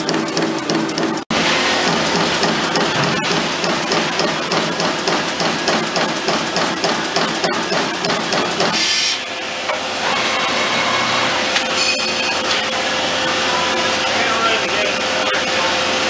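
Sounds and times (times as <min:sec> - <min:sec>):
machine punching sheet metal: 0:00.0 - 0:10.0
machine steady hum: 0:00.0 - 0:16.0.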